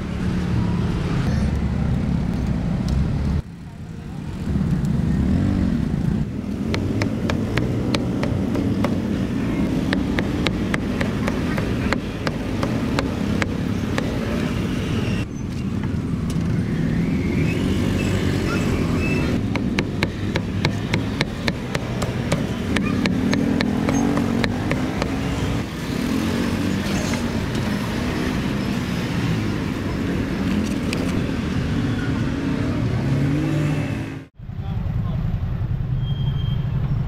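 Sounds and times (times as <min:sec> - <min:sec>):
street traffic: 0:00.0 - 0:37.0
sharp knocks: 0:06.6 - 0:14.2, 0:19.4 - 0:25.3.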